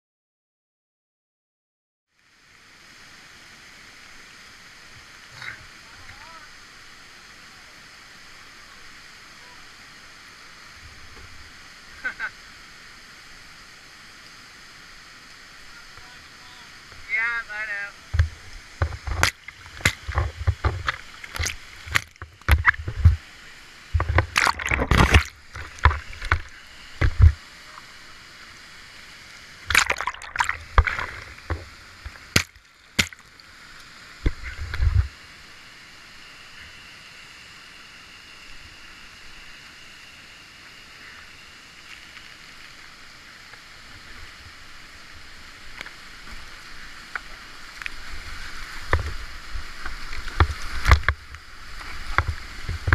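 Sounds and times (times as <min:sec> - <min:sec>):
water splashing against kayak: 0:16.0 - 0:28.1, 0:29.6 - 0:35.2, 0:45.6 - 0:52.9.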